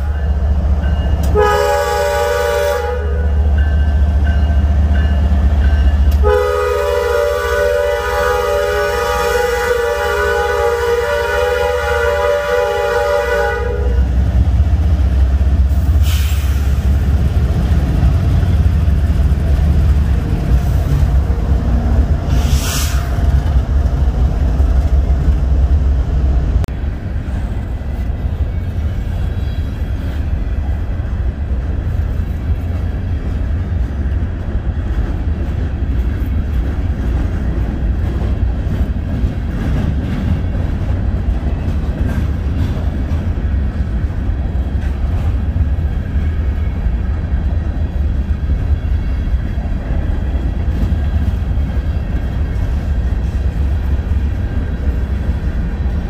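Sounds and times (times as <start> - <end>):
locomotive horn chord: 1.2 - 3.5, 6.1 - 14.2
locomotives passing rumble: 16.6 - 56.0.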